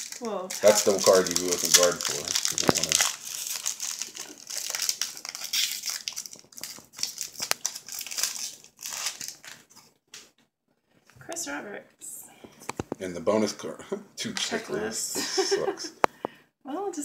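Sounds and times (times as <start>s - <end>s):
foil wrapper crinkling: 0.0s - 10.2s.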